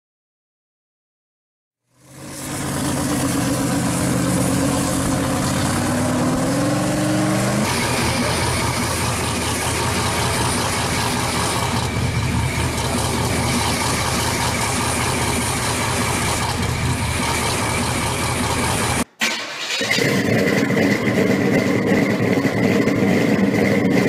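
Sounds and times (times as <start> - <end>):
rough engine running: 1.8 - 24.0
car engine idling: 1.9 - 24.0.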